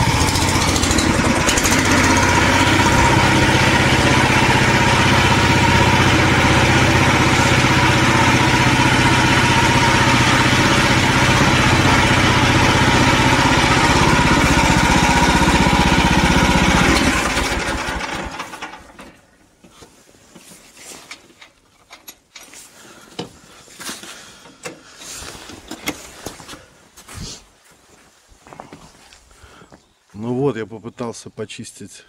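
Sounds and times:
small engine running and shutting down: 0.0s - 19.0s.

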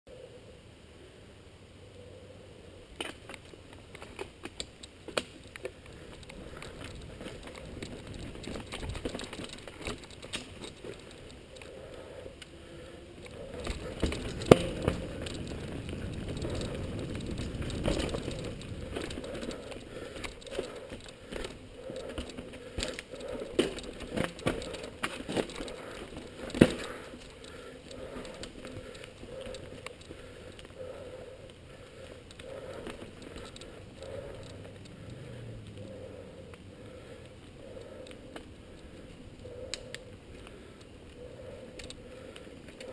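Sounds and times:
bike tyre and trail noise: 0.1s - 42.9s
bike rattling over rocks: 3.0s - 11.7s, 13.2s - 30.8s, 31.8s - 35.0s.

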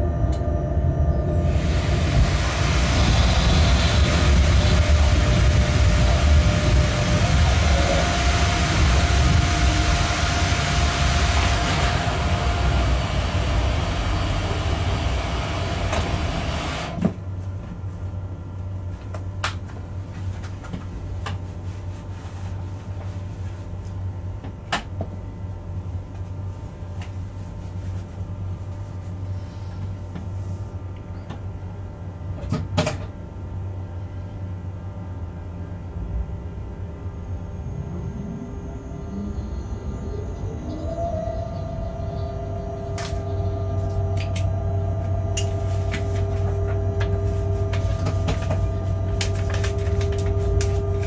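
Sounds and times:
locomotive rumble: 0.0s - 17.0s
low hum: 0.0s - 17.2s, 33.7s - 51.0s.

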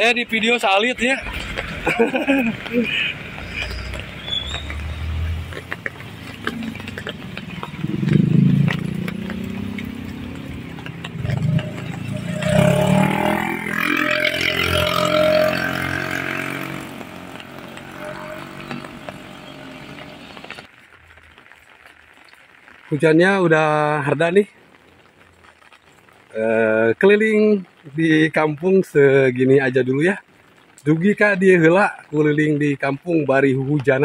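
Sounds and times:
motorcycles passing on wet road: 0.0s - 22.4s.

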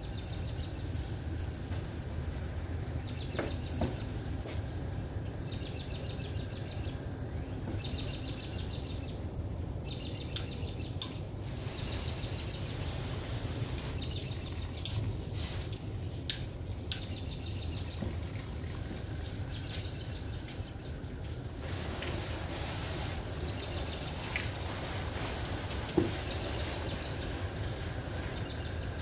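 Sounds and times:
hose spray hissing on car: 0.3s - 4.9s, 11.4s - 14.4s, 15.3s - 16.0s, 21.5s - 29.0s
small bird chirping trills: 5.3s - 13.2s.

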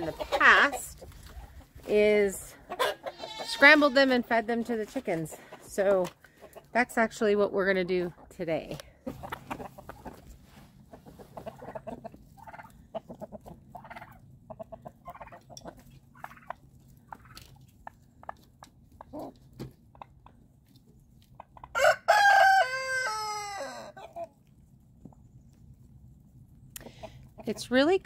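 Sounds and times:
chickens clucking: 0.0s - 26.0s, 26.8s - 28.0s
rooster crowing: 21.7s - 24.0s.

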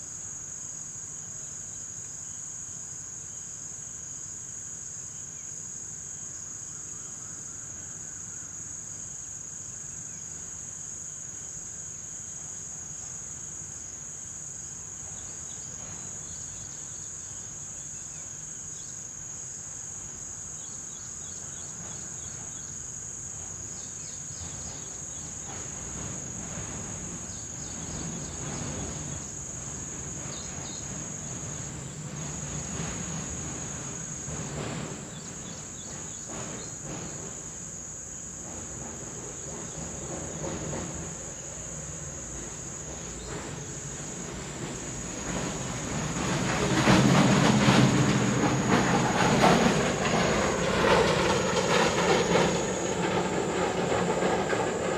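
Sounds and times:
crickets trilling: 0.0s - 54.9s
wind rustling palm fronds: 42.4s - 54.9s.

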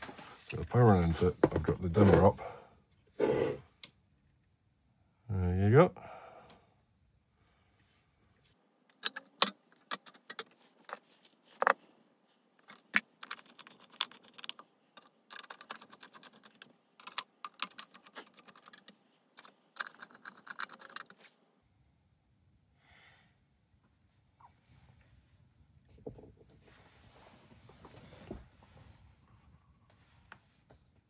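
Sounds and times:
plastic clicks and rattles: 8.9s - 11.8s, 12.6s - 21.2s.

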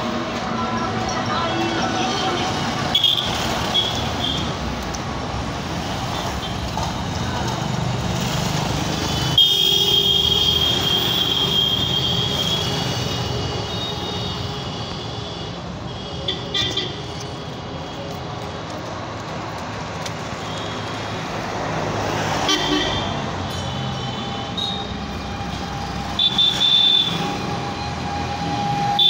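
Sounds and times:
road traffic passing: 0.0s - 29.0s
long vehicle horn: 22.4s - 25.1s, 26.2s - 27.4s.

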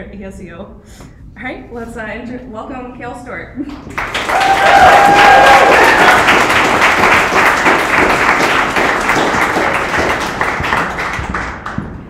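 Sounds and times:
audience applauding: 3.8s - 12.0s.

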